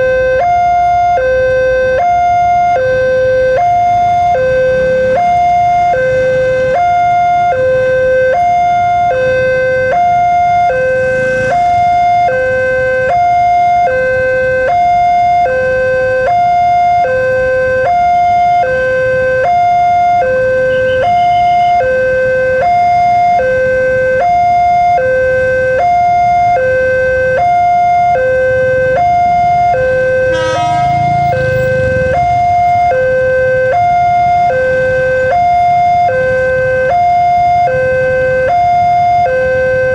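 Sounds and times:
two-tone electronic warning chime: 29.2s - 34.6s.

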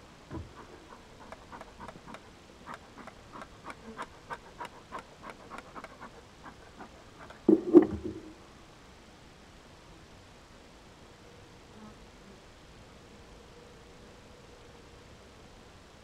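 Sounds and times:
bellows puffing air: 0.3s - 8.3s.

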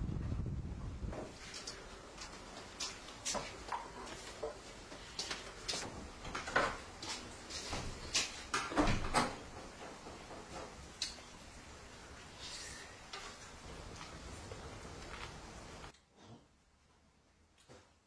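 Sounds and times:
objects knocking and clattering: 5.6s - 11.3s.

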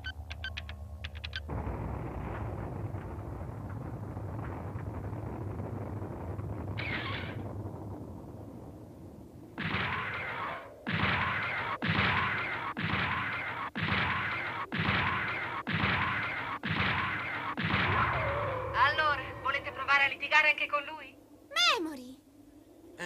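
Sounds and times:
low rumble: 0.0s - 12.4s, 17.0s - 21.5s.

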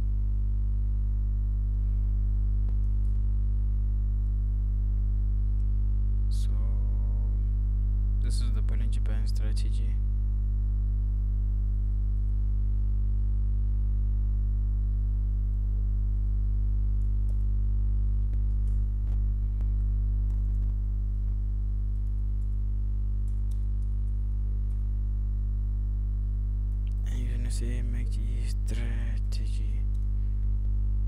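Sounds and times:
low synthesizer drone: 0.0s - 31.0s
faint clicks: 23.2s - 24.9s.

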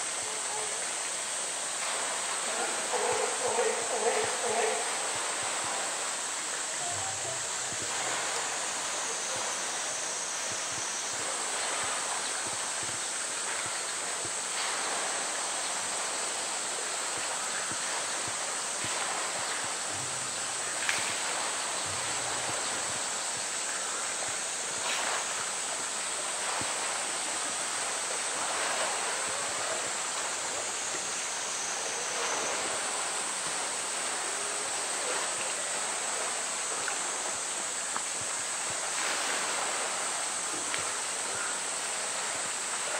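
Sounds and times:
water splashing and lapping: 0.0s - 42.9s.

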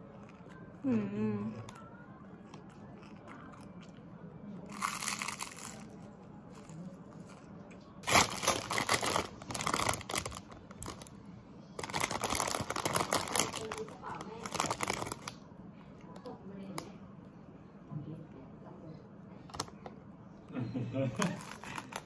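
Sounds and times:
snack crunching: 2.4s - 4.1s, 4.7s - 10.0s
plastic bag crinkling: 4.7s - 6.0s, 8.0s - 11.1s, 11.8s - 15.4s.

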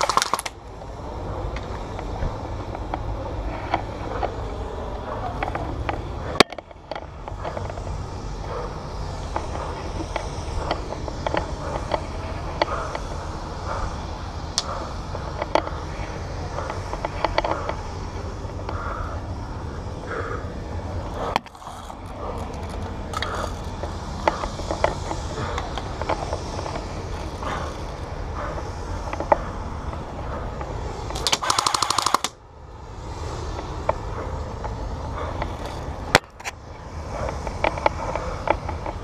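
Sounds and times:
airsoft guns firing: 0.0s - 0.5s, 31.1s - 32.4s
airsoft rifle full-auto burst: 0.0s - 0.5s, 31.1s - 32.4s
steady low rumble: 0.0s - 39.0s.

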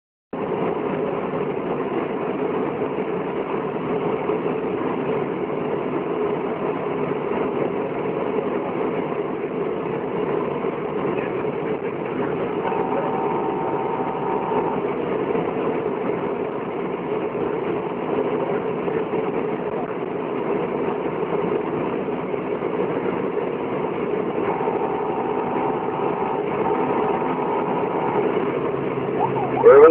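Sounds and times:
vehicle engine and road noise: 0.4s - 29.9s
short steady tone: 24.4s - 29.9s.

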